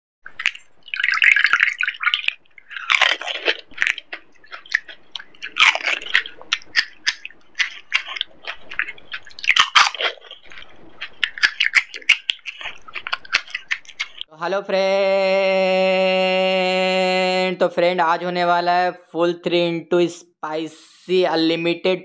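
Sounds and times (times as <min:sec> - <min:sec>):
crunching and chewing: 0:00.3 - 0:14.3.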